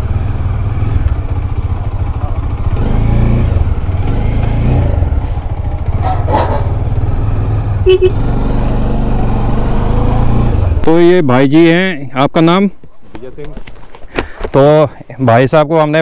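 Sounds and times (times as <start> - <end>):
motorcycle engine running slowly: 0.0 - 9.7
horn beep: 7.8 - 8.3.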